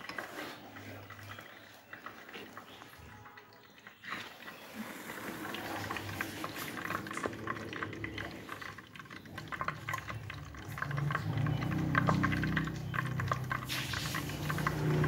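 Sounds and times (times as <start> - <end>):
oil sizzling in a frying pan: 3.8 - 15.0.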